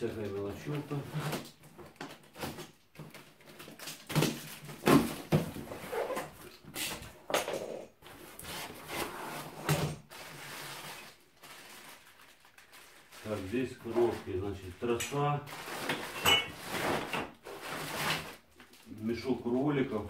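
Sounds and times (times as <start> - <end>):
packaging and foam rustling: 8.0 - 20.0.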